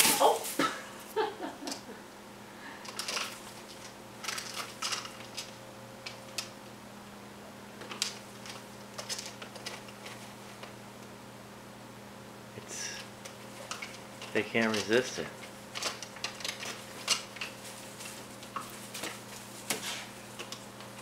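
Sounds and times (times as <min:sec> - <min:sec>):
palm fronds rustling: 0:00.0 - 0:00.8, 0:13.2 - 0:21.0.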